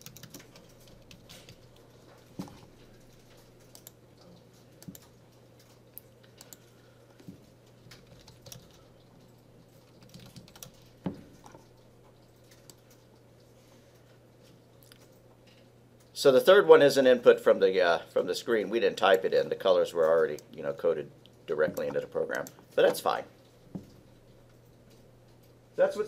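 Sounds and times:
keyboard typing: 0.0 - 1.8, 2.4 - 6.7, 7.8 - 13.2.

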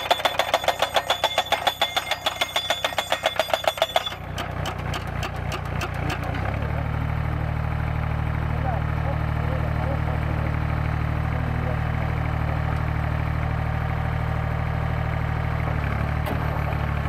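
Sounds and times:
hydraulic hammer pounding metal post: 0.0 - 6.6
machine engine running: 0.0 - 17.0.

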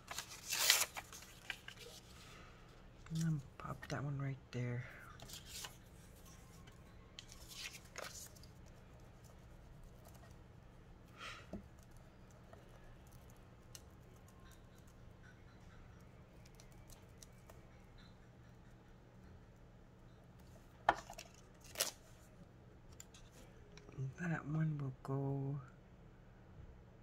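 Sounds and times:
paper handling: 0.0 - 2.3, 5.2 - 8.7, 20.9 - 22.0.

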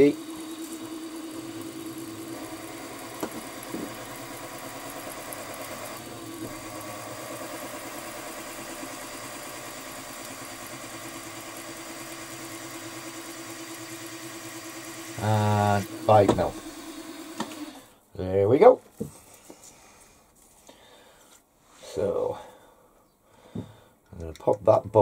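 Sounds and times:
milling machine spindle running: 0.0 - 17.9.

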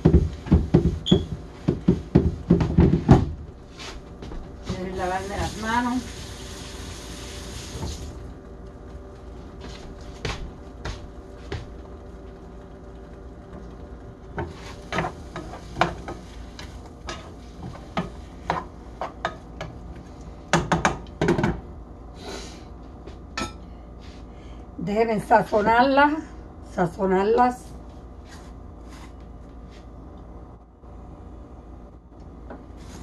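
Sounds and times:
faint hum: 0.0 - 33.0.

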